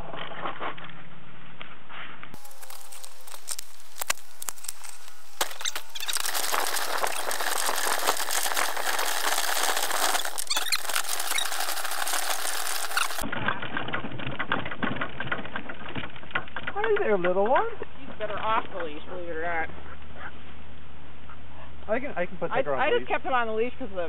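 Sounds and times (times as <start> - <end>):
bicycle frame rattling: 2.4 - 16.7
bicycle squeak: 4.6 - 13.2.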